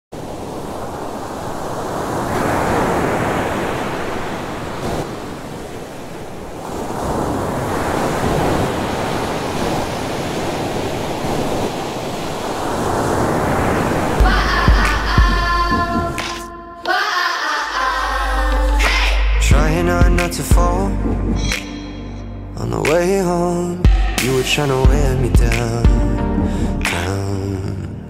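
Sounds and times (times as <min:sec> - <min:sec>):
wind: 0:00.1 - 0:15.6
waves washing ashore: 0:00.1 - 0:19.3
music with bass and chords: 0:18.0 - 0:28.0.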